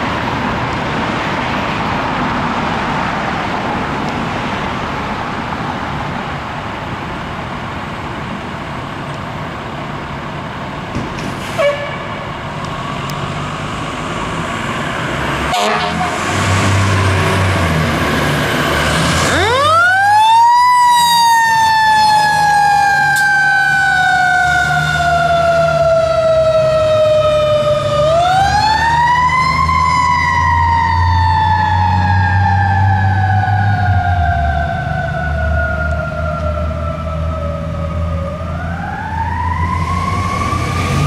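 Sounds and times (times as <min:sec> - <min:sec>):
diesel engine hum: 0:00.0 - 0:41.0
road noise: 0:00.0 - 0:41.0
fire truck siren: 0:11.5 - 0:13.1, 0:13.8 - 0:41.0.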